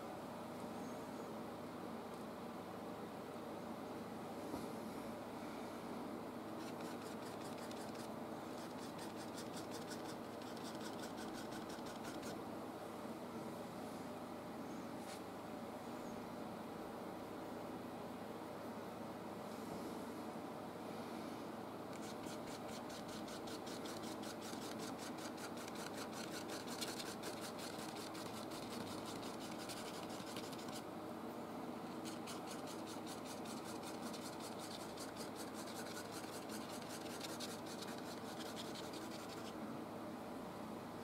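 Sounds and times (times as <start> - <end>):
paintbrush scrubbing on canvas: 6.6 - 12.4, 22.0 - 30.8, 31.9 - 39.6.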